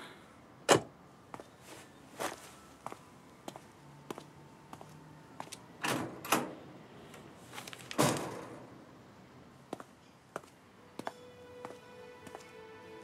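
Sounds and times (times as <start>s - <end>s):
footsteps: 1.3s - 5.6s, 9.7s - 12.6s
metal gate slamming shut: 5.8s - 6.6s, 8.0s - 8.7s.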